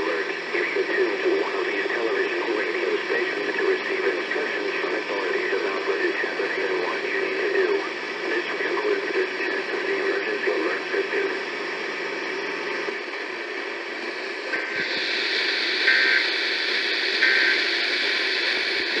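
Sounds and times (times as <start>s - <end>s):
faint voice on radio: 0.0s - 13.0s, 14.6s - 19.0s
radio static hiss: 0.0s - 19.0s
short data-tone bursts: 15.8s - 16.4s, 17.2s - 18.0s.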